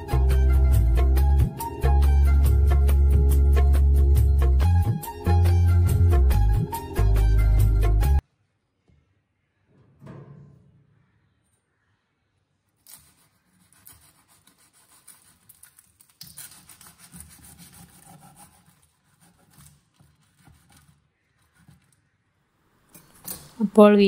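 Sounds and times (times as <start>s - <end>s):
knife cutting crisp crust: 12.8s - 21.7s.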